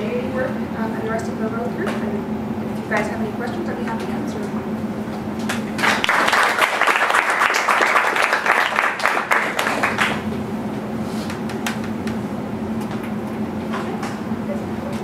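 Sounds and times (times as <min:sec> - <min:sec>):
low room hum: 0:00.0 - 0:15.0
audience applauding: 0:05.5 - 0:10.3.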